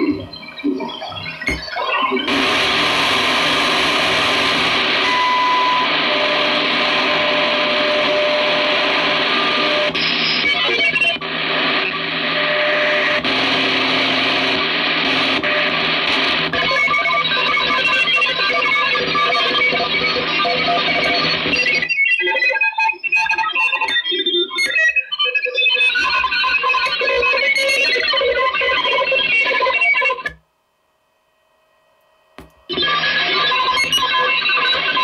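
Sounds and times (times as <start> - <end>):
radio whistles: 0.0 - 18.9, 32.7 - 35.0
radio hiss: 0.0 - 19.0
shortwave radio music: 0.0 - 21.8, 32.4 - 35.0.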